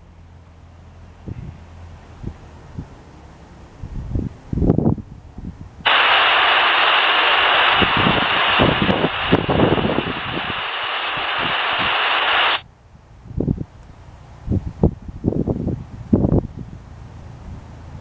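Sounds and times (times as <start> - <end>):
wind buffeting microphone: 3.8 - 12.6
radio scanner static hiss: 5.9 - 12.6.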